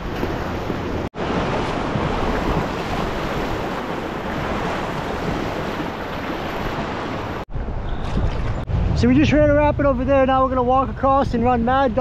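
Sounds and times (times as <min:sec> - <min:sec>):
whitewater rushing and splashing: 0:00.0 - 0:07.5.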